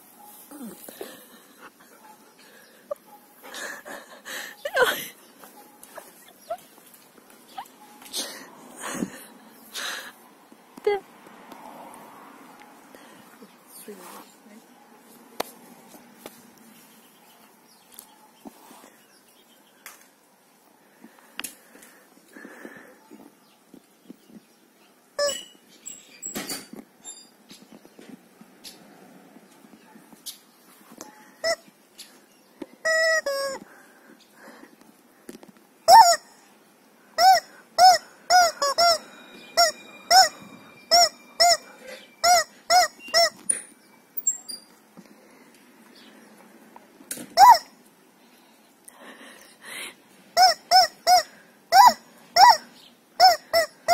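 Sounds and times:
soft rustle: 13.3s - 19.1s
rubber chicken toy squawking: 32.9s - 33.6s, 35.9s - 36.3s, 37.2s - 39.0s, 42.2s - 43.4s, 47.4s - 47.7s, 50.4s - 52.6s, 53.2s - 53.9s.

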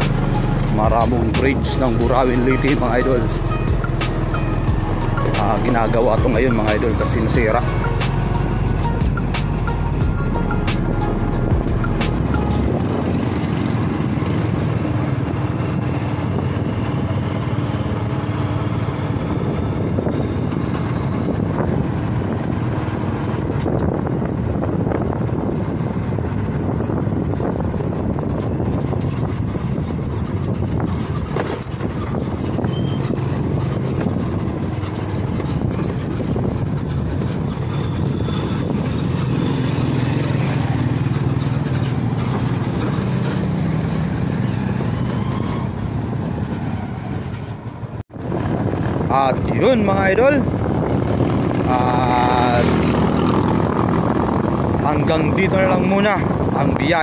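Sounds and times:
small motorcycle running: 11.4s - 57.0s.

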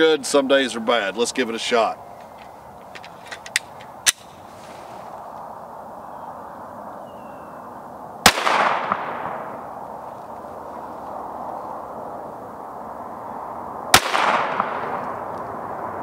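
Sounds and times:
outdoor hiss: 4.2s - 5.5s
pistol shot with echo: 8.2s - 9.6s, 13.9s - 15.1s.

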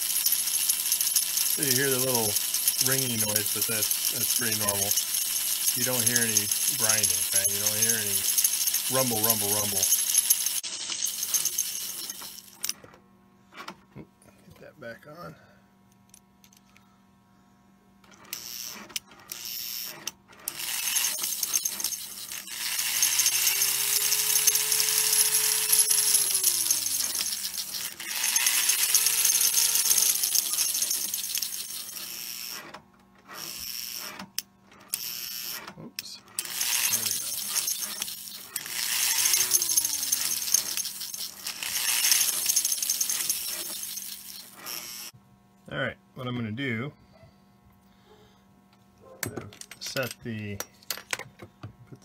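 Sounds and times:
toy train motor whirring: 0.0s - 12.8s, 18.1s - 45.2s.

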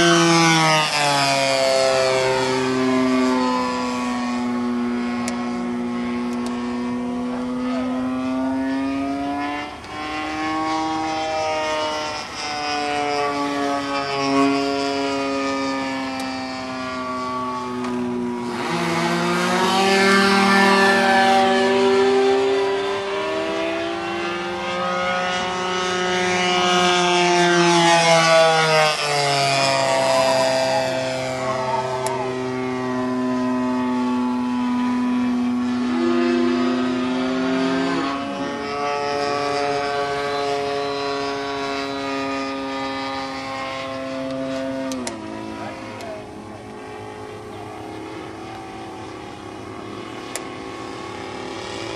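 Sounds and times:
model airplane engine: 0.0s - 51.9s.

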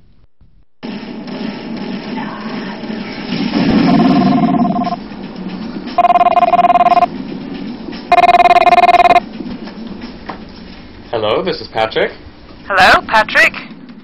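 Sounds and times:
electronic telephone ringer: 3.9s - 5.0s, 6.0s - 7.1s, 8.1s - 9.2s.

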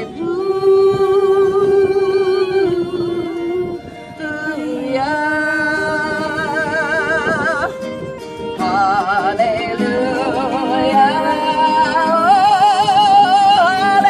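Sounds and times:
acoustic guitar: 0.0s - 14.0s
violin: 0.0s - 14.0s
women singing with vibrato: 0.0s - 14.0s.

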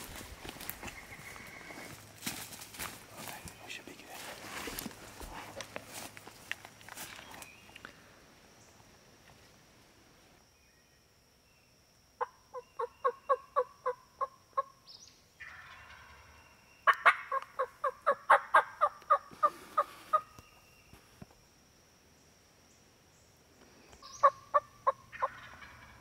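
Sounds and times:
wild turkey calling: 0.0s - 2.0s, 12.2s - 20.8s, 24.0s - 26.0s.

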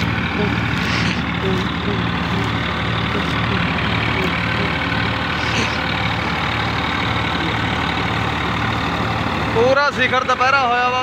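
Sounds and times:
reaper machinery rushing: 0.0s - 8.7s
tractor diesel engine running: 0.0s - 11.0s.

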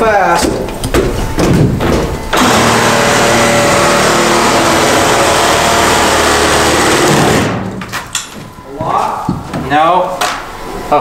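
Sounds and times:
reciprocating saw cutting wood: 2.4s - 7.5s.

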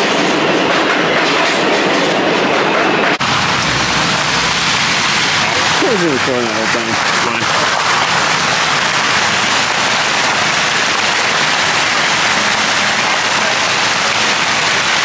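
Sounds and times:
fountain water splashing: 3.2s - 15.0s.

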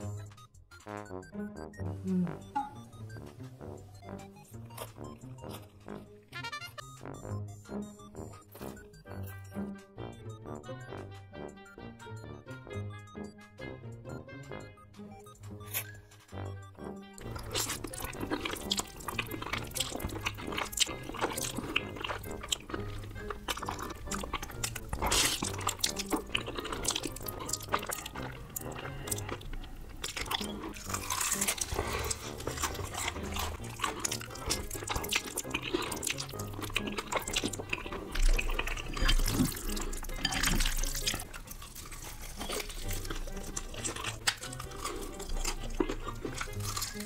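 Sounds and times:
slurping and chewing noodles: 2.0s - 9.4s, 15.5s - 47.0s.

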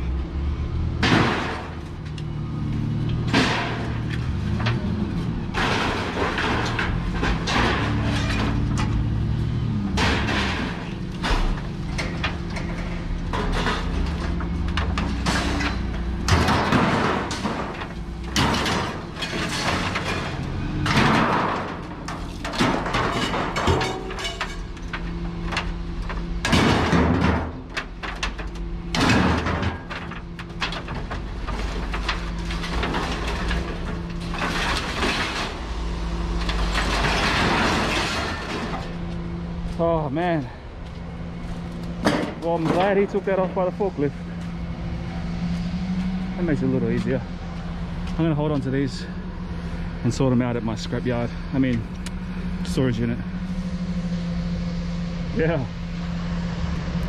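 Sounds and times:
steel roofing scraping and clattering: 3.2s - 54.1s
engine idling: 38.4s - 57.0s.

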